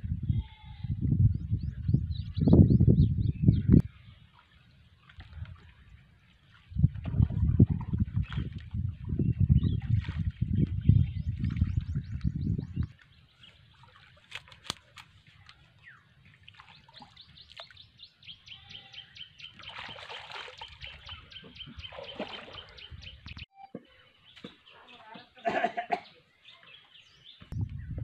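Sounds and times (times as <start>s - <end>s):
birds chirping: 0.4s - 4.4s, 8.2s - 28.0s
shallow water splashing: 3.9s - 12.2s, 12.8s - 23.3s.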